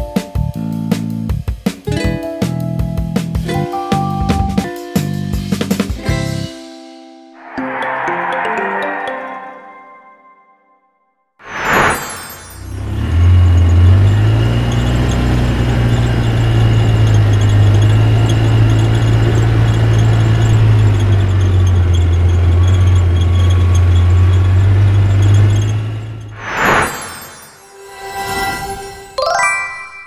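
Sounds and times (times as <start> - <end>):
heavy vehicle engine rumbling: 12.7 - 26.4
high engine whine: 12.8 - 27.1.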